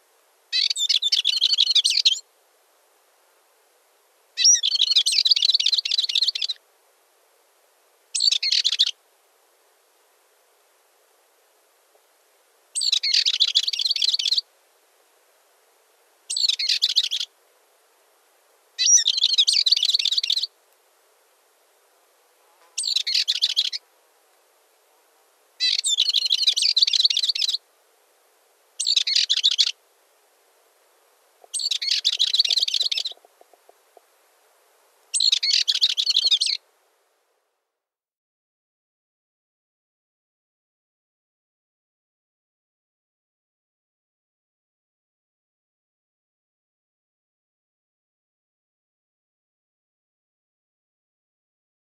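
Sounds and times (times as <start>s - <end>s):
bird warbling song: 0.5s - 2.2s, 4.4s - 6.6s, 8.1s - 9.0s, 12.8s - 14.4s, 16.3s - 17.3s, 18.8s - 20.5s, 22.8s - 23.8s, 25.6s - 27.6s, 28.8s - 29.8s, 31.4s - 34.0s, 35.1s - 36.6s.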